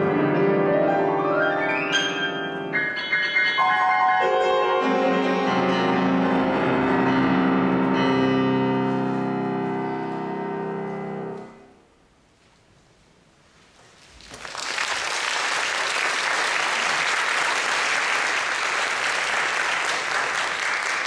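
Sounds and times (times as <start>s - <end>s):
piano chord: 0.0s - 11.8s
audience applauding: 14.1s - 21.0s.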